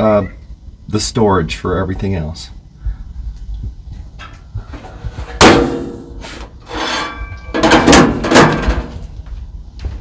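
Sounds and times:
metal knocks and rattles: 4.0 - 6.2, 6.8 - 9.2
metal cabinet door banging: 5.2 - 9.0.

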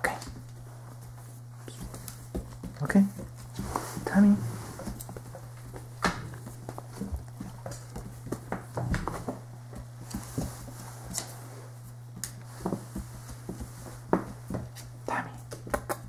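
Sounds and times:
steady low hum: 0.0 - 16.0
dog claws clicking on hardwood floor: 4.9 - 11.3, 13.5 - 16.0.

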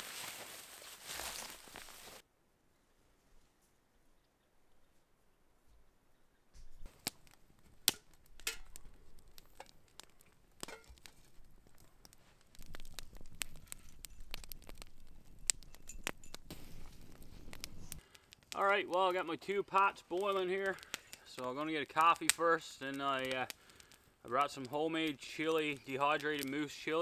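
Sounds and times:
campfire crackling and popping: 6.6 - 27.0.

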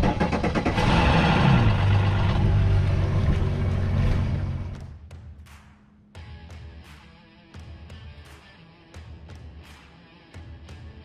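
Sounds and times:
outboard motor starting and idling: 0.0 - 4.7.

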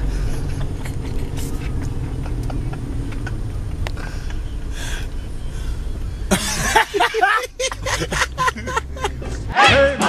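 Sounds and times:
road and engine rumble: 0.0 - 10.0.

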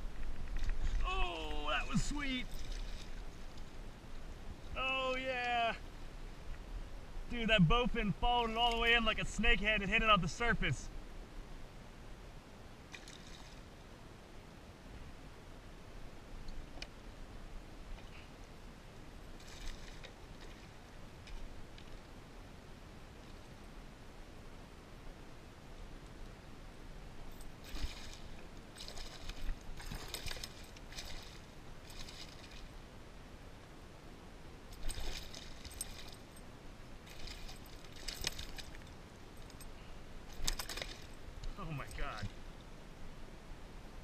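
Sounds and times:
water splash: 27.6 - 32.7.

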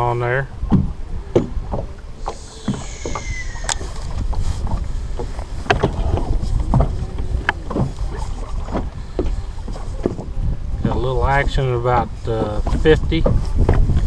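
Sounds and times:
wind rumbling on microphone: 0.0 - 14.0
water lapping against boat hull: 0.5 - 14.0
faint falling whistle: 2.4 - 4.0.

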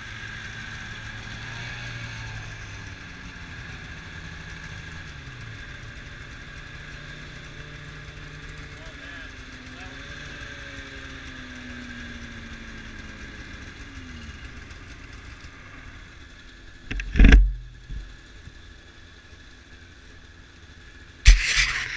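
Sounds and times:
snowmobile engine idling: 0.0 - 21.9.

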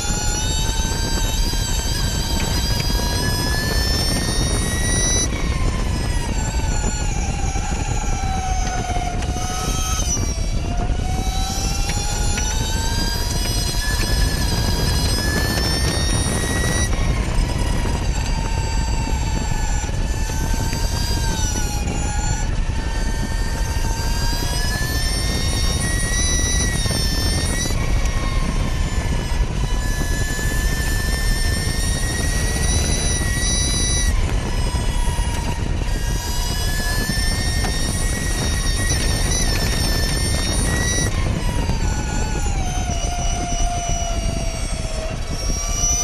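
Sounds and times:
electric motor whine: 0.0 - 46.0
wind rush: 0.0 - 46.0.

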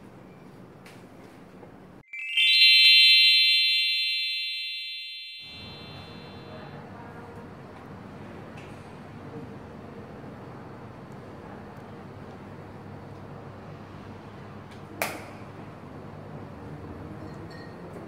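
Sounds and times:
rising bell-like chime: 2.0 - 6.8.

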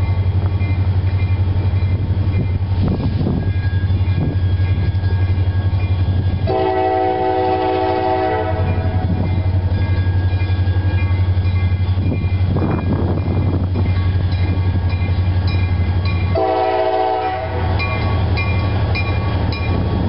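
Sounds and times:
locomotive air horn chord: 6.5 - 9.1, 16.4 - 17.8.

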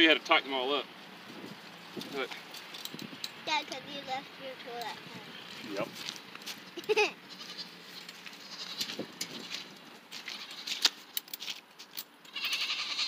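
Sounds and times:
goats bleating: 6.8 - 9.0, 10.2 - 10.8, 12.3 - 13.0.

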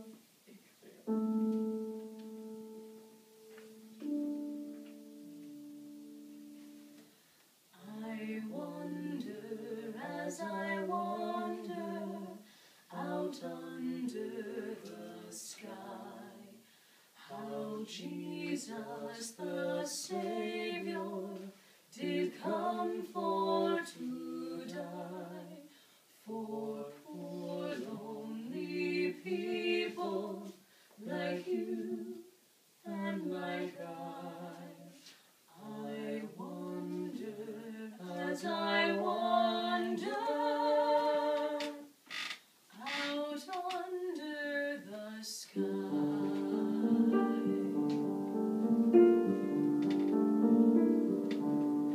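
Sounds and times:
woman singing: 7.8 - 16.6, 17.2 - 25.7, 26.3 - 42.0, 42.7 - 47.9.

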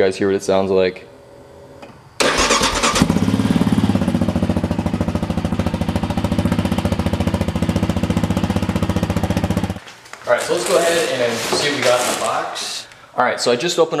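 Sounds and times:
engine starting and idling: 2.2 - 4.1.

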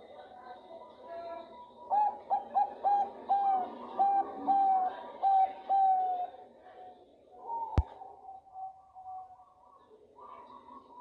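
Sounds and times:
dove cooing: 1.6 - 6.5, 7.4 - 11.0.

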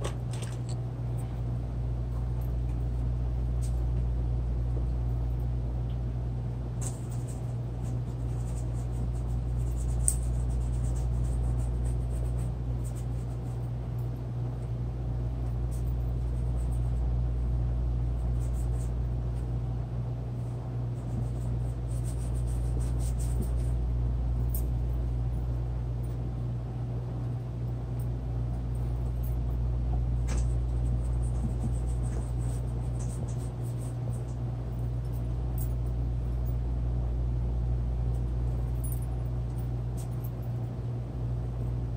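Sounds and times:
low hum: 0.0 - 41.9.

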